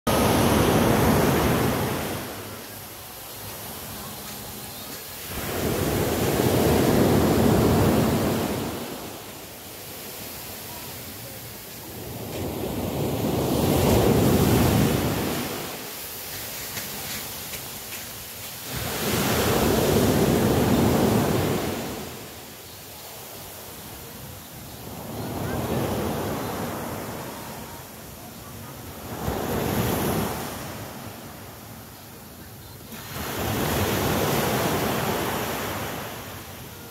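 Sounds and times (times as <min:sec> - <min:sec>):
waves breaking on sandy beach: 0:00.1 - 0:36.9.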